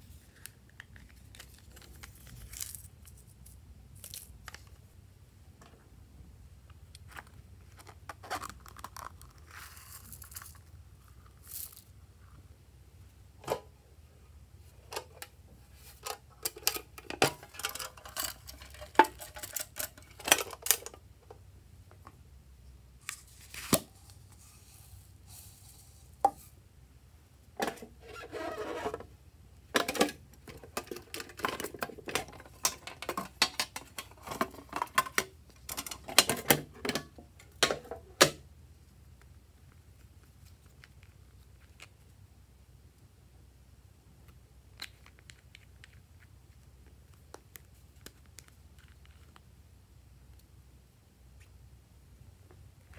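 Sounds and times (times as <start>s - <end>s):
foam beads rattling pour: 9.2s - 10.7s, 11.4s - 11.9s.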